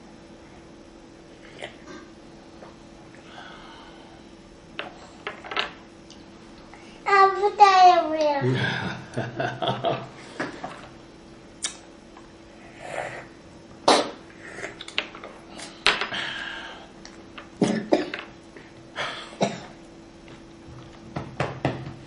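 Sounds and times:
faint steady hum: 0.0 - 22.0
small child coughing: 13.9 - 14.2, 17.6 - 18.2, 19.4 - 19.8.

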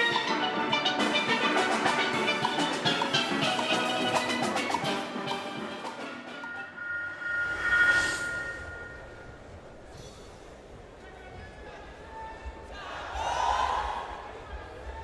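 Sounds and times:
steel orchestra playing: 0.0 - 9.9.

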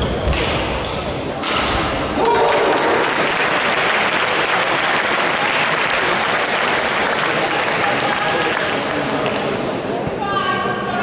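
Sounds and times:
spectators applauding: 2.2 - 9.6.

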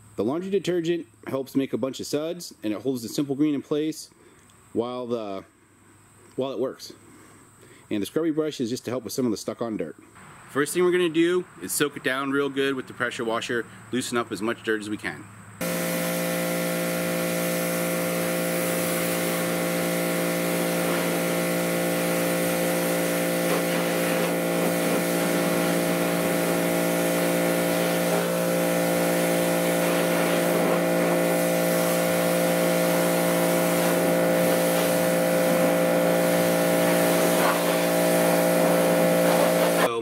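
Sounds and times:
pressure washer motor hum: 15.6 - 39.9
spray hissing: 15.6 - 39.9.

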